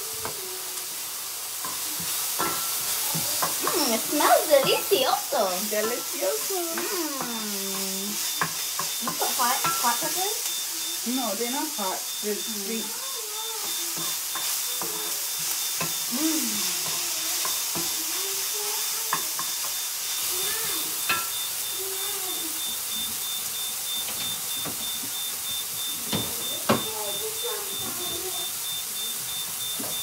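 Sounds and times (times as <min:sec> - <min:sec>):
vegetables sizzling in oil: 0:00.0 - 0:30.0
wooden spatula knocking on pan: 0:13.6 - 0:16.0, 0:26.1 - 0:26.9.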